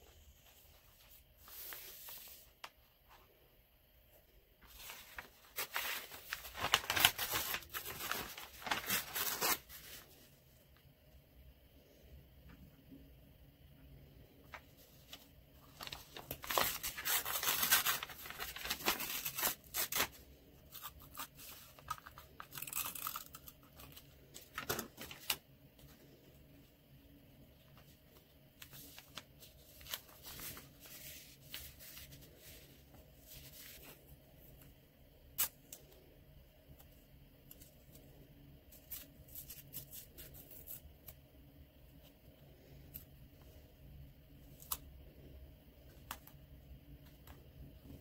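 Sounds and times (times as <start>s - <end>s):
paper rustling and crinkling: 0.4s - 2.8s, 4.6s - 10.4s, 14.5s - 26.0s, 27.7s - 34.1s.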